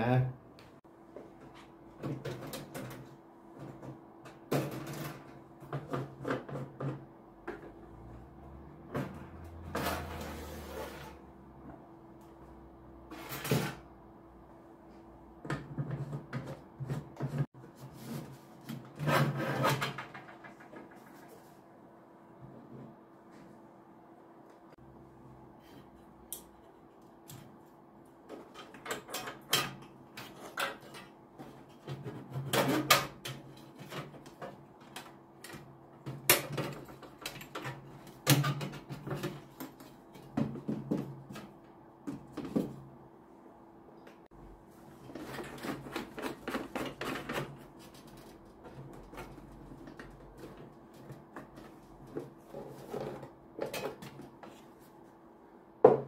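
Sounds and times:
clicks and knocks of metal and plastic parts: 28.3 - 42.8, 45.0 - 54.6.

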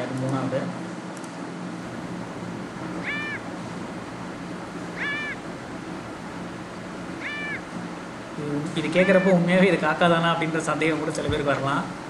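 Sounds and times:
crow calls: 2.2 - 6.0, 7.0 - 7.9, 8.8 - 9.4.

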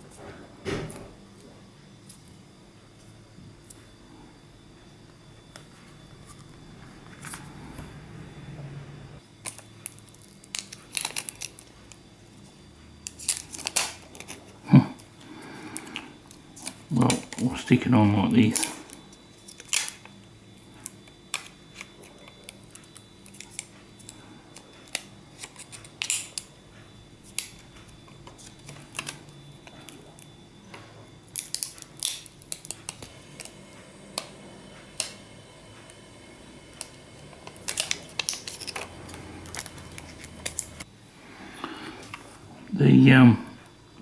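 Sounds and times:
plastic film crinkling: 9.4 - 12.0, 37.4 - 40.8.

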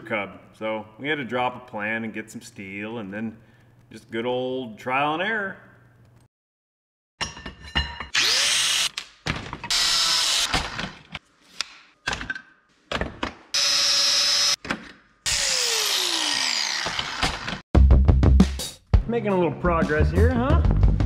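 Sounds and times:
angle grinder grinding steel: 15.3 - 17.6.

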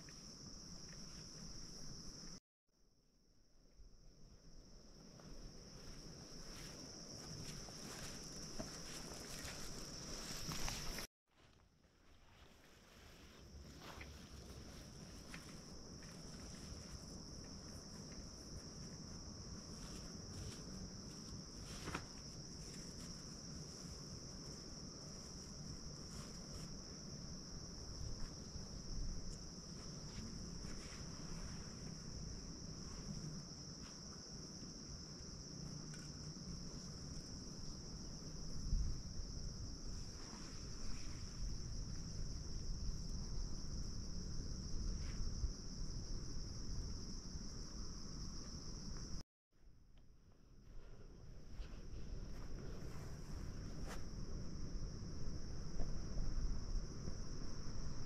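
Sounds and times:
insects chirring: 0.0 - 2.4, 3.2 - 11.1, 12.1 - 49.2, 50.4 - 58.0
footsteps on dry pine needles: 6.1 - 11.0.

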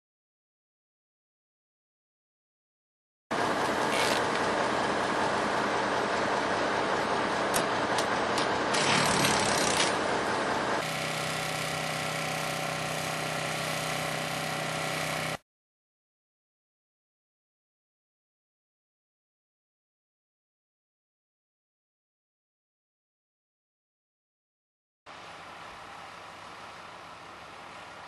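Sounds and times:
truck engine idling: 3.4 - 8.9, 9.9 - 15.0, 25.1 - 28.0.

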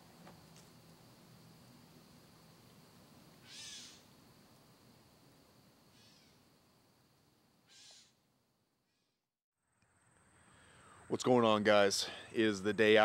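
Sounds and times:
faint animal calls: 3.4 - 4.1, 5.9 - 6.4, 7.6 - 8.2.

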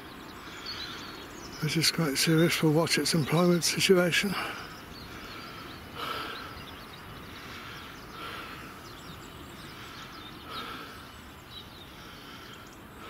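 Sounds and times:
faint bird chirps: 0.0 - 13.0
steady outdoor hiss: 0.0 - 13.0.

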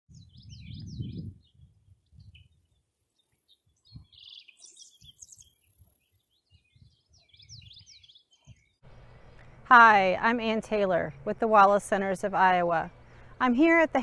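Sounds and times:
wind rumble on microphone: 0.1 - 2.8, 3.7 - 4.2, 5.8 - 8.6
birds singing and chirping: 0.1 - 14.0.

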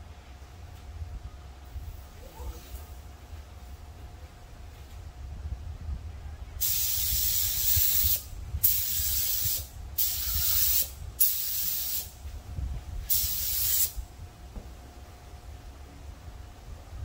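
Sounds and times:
steady low rumble: 0.0 - 17.0
spray gun air hiss: 6.6 - 12.2, 13.0 - 14.1.

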